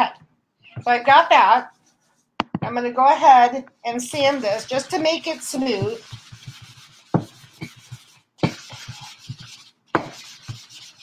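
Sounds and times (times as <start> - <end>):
sanding block rasping on wood: 4.2 - 11.0.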